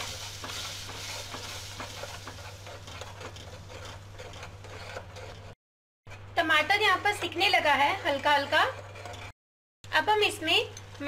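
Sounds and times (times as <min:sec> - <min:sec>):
sizzling in oil: 0:00.0 - 0:04.8
metal spoon scraping a pan: 0:00.0 - 0:09.4.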